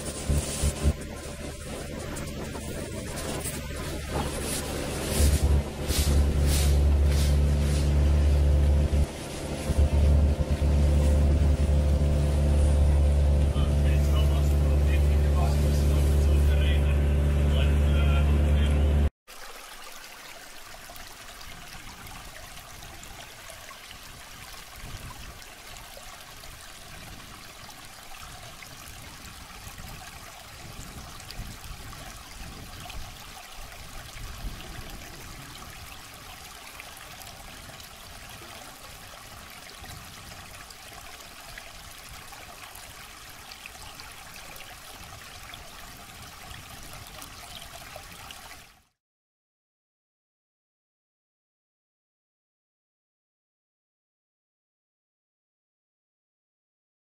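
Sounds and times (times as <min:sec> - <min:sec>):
water rushing over rocks: 0:00.0 - 0:18.6, 0:19.3 - 0:48.9
low rumbles: 0:00.0 - 0:19.1.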